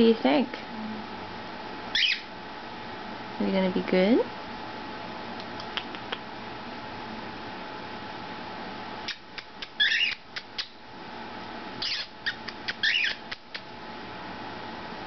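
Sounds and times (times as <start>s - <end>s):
parrot shrill calls: 1.9s - 2.3s, 9.1s - 10.7s, 11.8s - 13.4s
parrots chirping: 1.9s - 2.3s, 9.1s - 10.8s, 11.8s - 13.7s.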